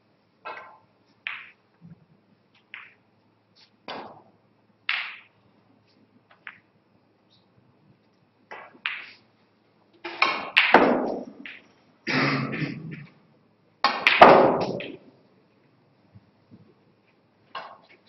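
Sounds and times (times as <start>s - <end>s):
snooker balls knocking: 0.4s - 1.6s, 2.6s - 3.0s, 3.9s - 5.3s, 6.3s - 6.7s, 8.5s - 9.2s, 10.0s - 11.7s, 13.8s - 15.1s, 17.6s - 17.9s.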